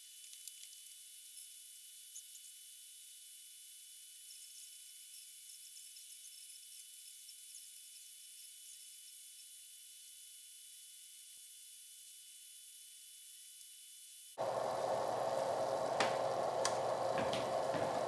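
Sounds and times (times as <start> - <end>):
pizza sizzling: 14.4 - 18.0.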